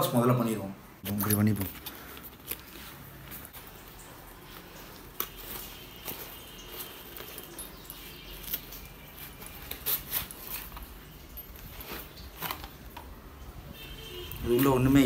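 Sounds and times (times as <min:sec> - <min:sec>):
cardboard rustling and scraping: 0:09.1 - 0:12.8.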